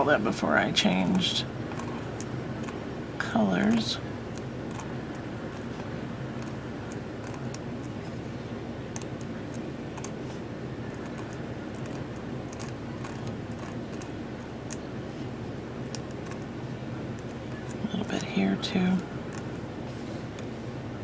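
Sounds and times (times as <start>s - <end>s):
steady low hum: 0.0s - 21.0s
pen nib scratching on glass: 4.4s - 5.8s, 6.4s - 8.2s, 10.9s - 14.9s, 15.9s - 16.5s.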